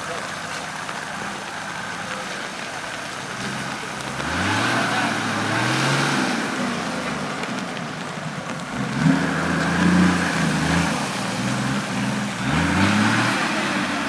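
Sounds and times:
water churning and splashing: 0.0s - 14.0s
truck engine revving: 3.0s - 14.0s.

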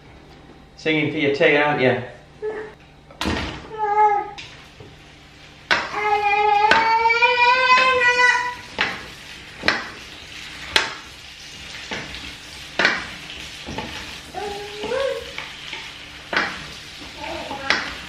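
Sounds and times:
vegetables sizzling in a frying pan: 4.4s - 18.0s
wooden spatula knocking on pan: 5.7s - 6.0s, 6.6s - 7.0s, 8.8s - 9.0s, 9.6s - 10.0s, 10.7s - 11.0s, 12.8s - 13.1s, 16.3s - 16.7s, 17.6s - 18.0s.

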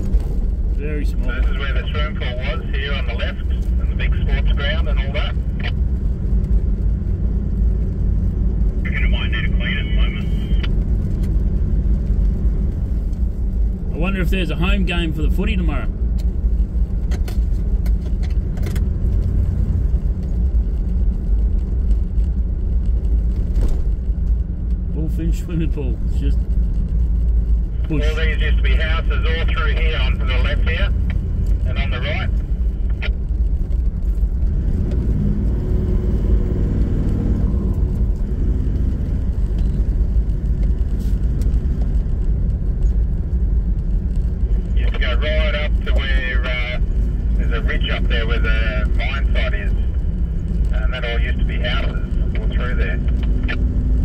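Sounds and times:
engine and tyre rumble in car cabin: 0.0s - 54.0s
tyre rumble on road: 15.9s - 25.0s.

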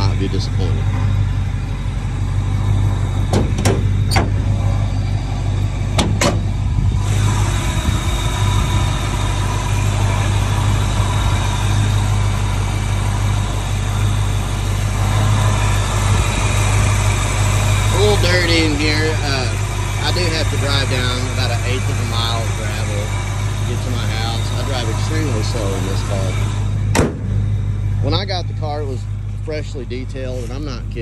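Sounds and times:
car engine idling: 0.0s - 31.0s
car hood clicks and knocks: 3.3s - 4.4s, 6.0s - 6.5s, 26.9s - 27.3s.

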